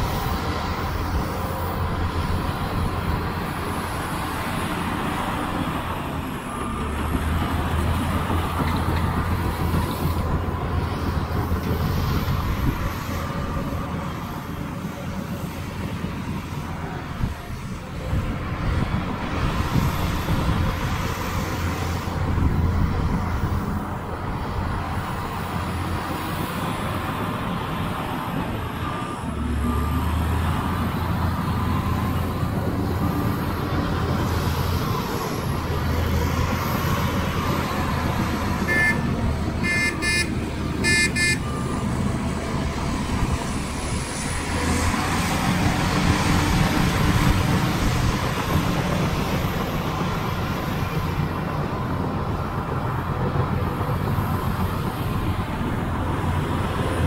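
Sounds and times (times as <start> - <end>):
heavy machinery diesel engine: 0.0 - 57.0
reversing alarm beeping: 36.8 - 43.6.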